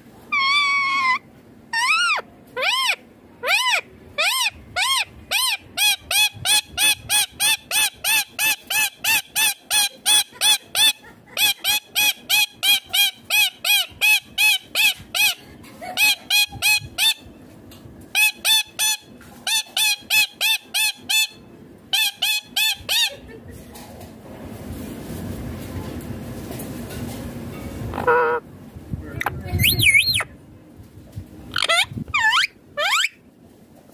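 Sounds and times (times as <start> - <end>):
parakeet screeching: 0.3 - 9.5, 27.9 - 28.4, 29.2 - 30.3, 31.5 - 33.2.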